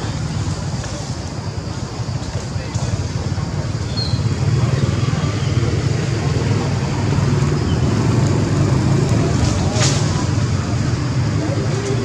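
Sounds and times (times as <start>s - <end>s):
faint high chirp: 3.8s - 4.3s.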